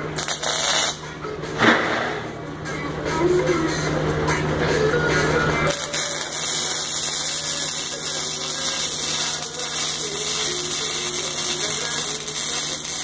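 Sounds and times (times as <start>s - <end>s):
arc welder hissing: 0.0s - 1.0s, 5.7s - 13.0s.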